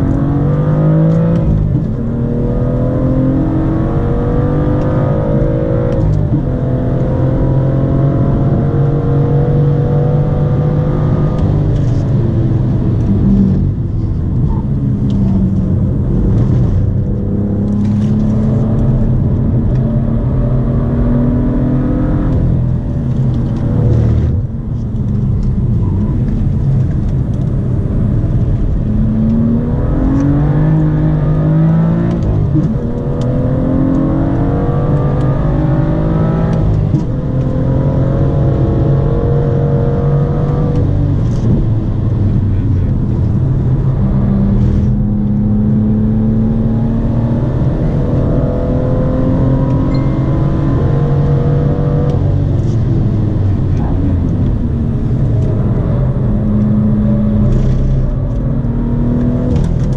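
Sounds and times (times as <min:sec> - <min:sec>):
car engine revving in gear changes: 0:00.0 - 0:59.9.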